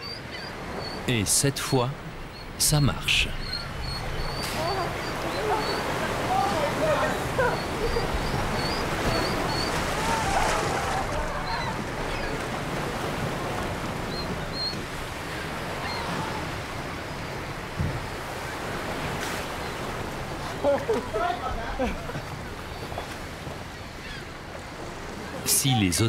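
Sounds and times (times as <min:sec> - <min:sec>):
surf washing against rocks: 0:00.6 - 0:26.0.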